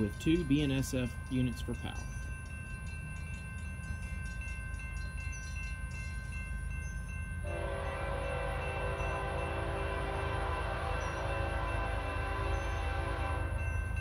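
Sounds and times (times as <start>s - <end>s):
locomotive air horn: 7.4s - 13.7s.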